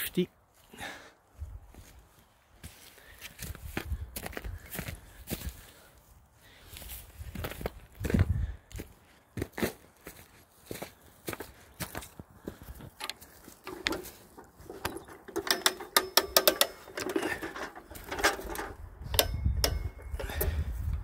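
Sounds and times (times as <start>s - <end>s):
ratchet winch pawl clicking: 14.6s - 21.0s.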